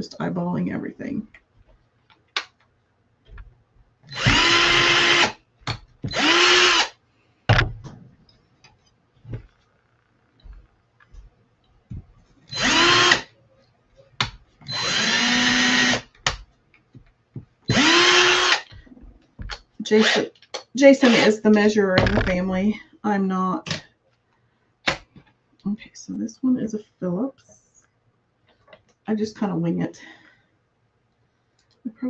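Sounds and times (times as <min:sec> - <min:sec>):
cordless drill boring into wood: 0:04.1 - 0:05.4, 0:06.1 - 0:07.0, 0:12.5 - 0:13.3, 0:14.7 - 0:16.1, 0:17.7 - 0:18.7, 0:20.0 - 0:20.4, 0:21.0 - 0:21.3.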